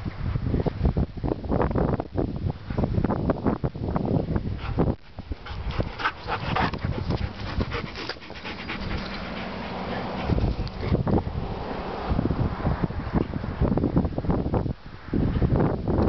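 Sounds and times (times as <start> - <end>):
dog panting: 4.6 - 11.0.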